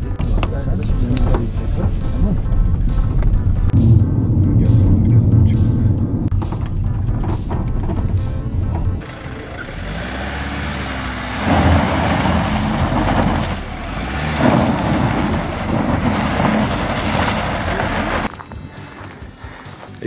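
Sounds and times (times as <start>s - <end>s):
minibus engine running: 5.5s - 18.3s
tyres grinding on dirt: 6.3s - 18.3s.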